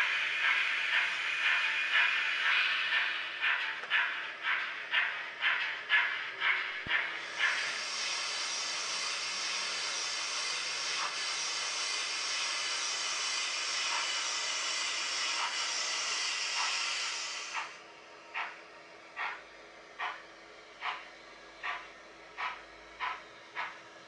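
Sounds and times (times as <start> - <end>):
steam hiss: 0.0 - 17.8
steam locomotive exhaust chuffs: 0.0 - 24.0.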